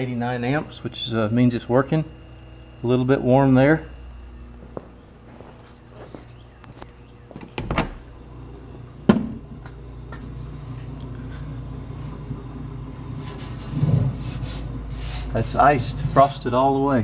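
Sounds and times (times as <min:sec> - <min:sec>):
refrigerator compressor humming: 0:00.0 - 0:17.0
refrigerator door thunk: 0:07.4 - 0:08.1, 0:09.1 - 0:09.5.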